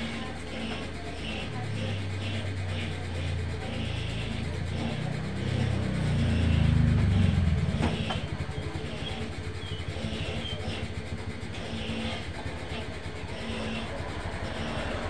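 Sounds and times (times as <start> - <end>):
low throb: 0.0 - 15.0
motorcycle passing: 3.5 - 15.0.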